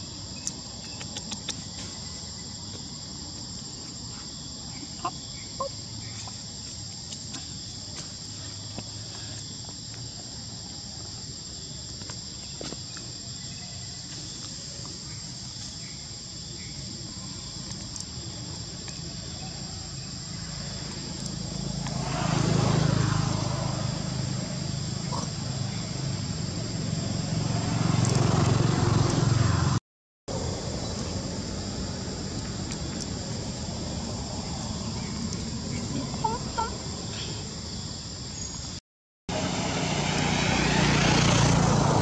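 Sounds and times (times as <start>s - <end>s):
insect chorus drone: 0.0s - 42.0s
passing engine: 20.3s - 37.6s, 39.3s - 42.0s.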